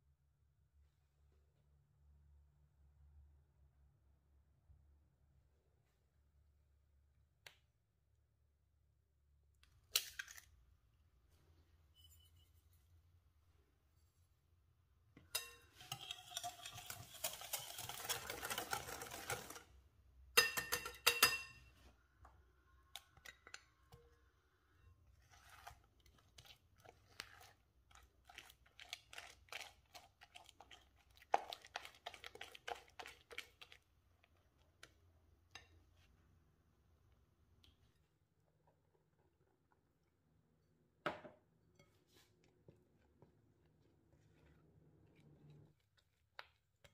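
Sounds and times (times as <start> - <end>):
batter stirred in glass bowl: 15.2 - 22.0, 22.7 - 36.1
spatula mashing butter: 15.2 - 22.0, 22.8 - 36.2, 42.0 - 46.9.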